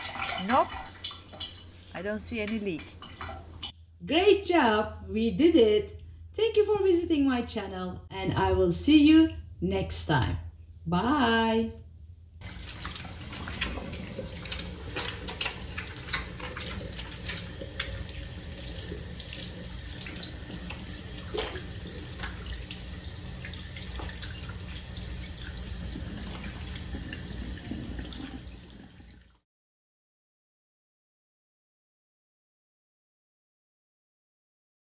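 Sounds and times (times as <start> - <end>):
running water splashing: 0.0 - 3.7, 12.4 - 29.3.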